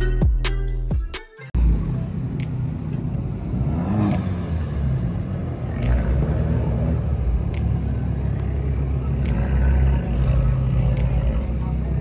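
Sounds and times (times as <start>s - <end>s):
cars driving slowly past: 1.6s - 12.0s
sharp ticks: 7.4s - 10.2s.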